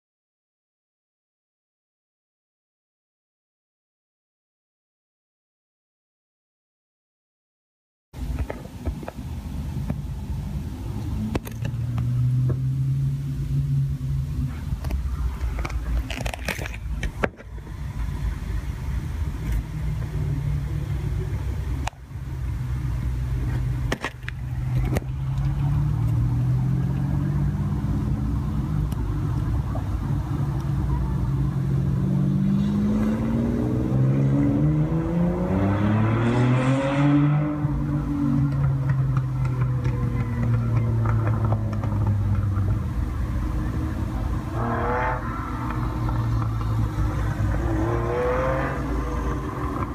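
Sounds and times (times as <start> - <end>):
car engine running: 8.2 - 33.6, 37.9 - 49.9.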